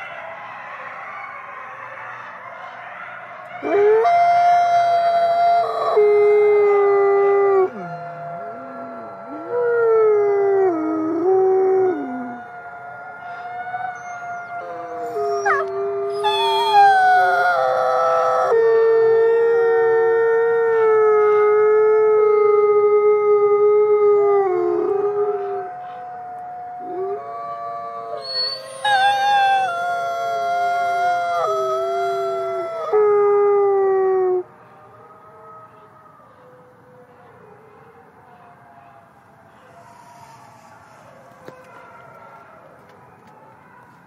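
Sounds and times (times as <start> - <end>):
wolf howling: 3.6 - 34.5.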